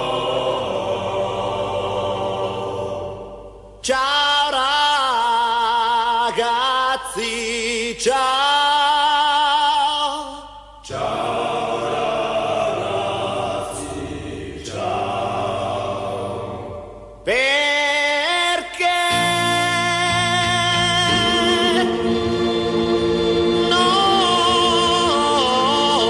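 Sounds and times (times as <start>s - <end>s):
person singing with vibrato: 0.0s - 26.0s.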